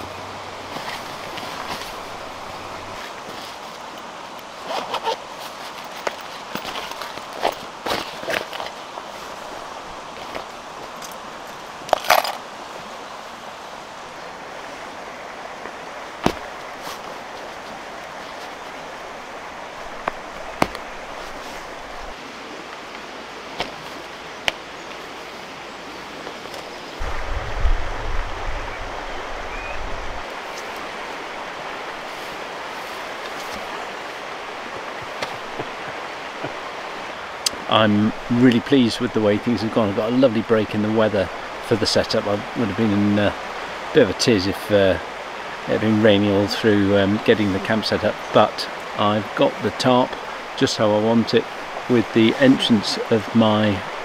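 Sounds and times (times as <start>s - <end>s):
stream rushing: 0.0s - 54.0s
low rumble and thump: 27.0s - 29.0s.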